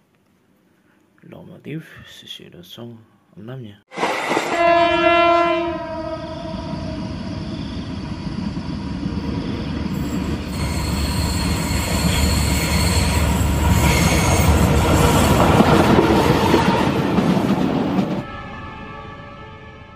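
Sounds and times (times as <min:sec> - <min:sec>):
locomotive rumbling past: 0:03.9 - 0:19.7
train horn blast: 0:04.0 - 0:07.4, 0:18.1 - 0:19.9
high wheel squeal: 0:09.1 - 0:15.4.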